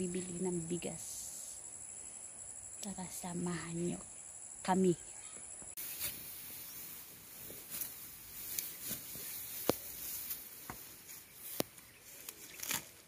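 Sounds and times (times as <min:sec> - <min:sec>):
rice stalks rustling: 0:05.8 - 0:13.0.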